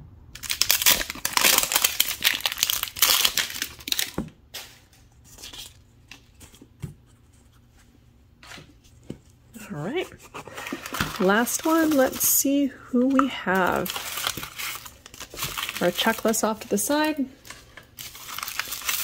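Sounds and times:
paper tearing and crinkling: 0.4 - 6.3, 10.2 - 12.3, 13.0 - 19.0.

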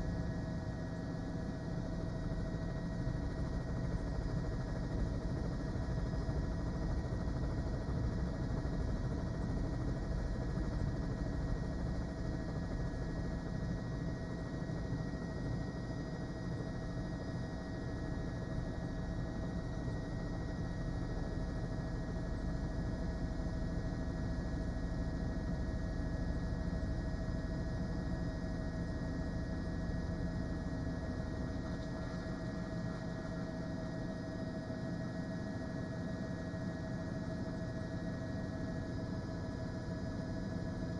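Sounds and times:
helicopter engine hum: 0.1 - 25.8.

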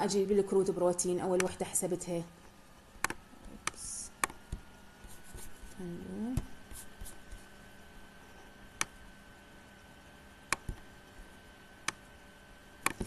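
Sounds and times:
computer mouse clicks: 3.0 - 4.6, 8.8 - 9.0, 10.5 - 10.8, 11.8 - 12.0
person humming: 5.8 - 6.5.

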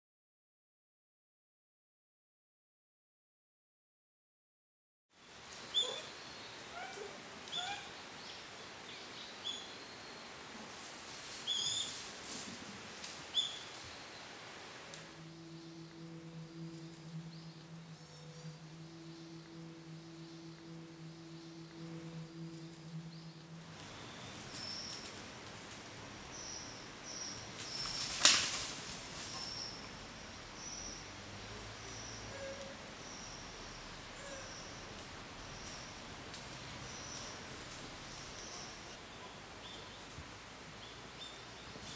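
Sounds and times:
faint hiss: 5.2 - 41.9
high bird chirps: 15.1 - 25.3
sharp click with crackle: 27.7 - 28.8.

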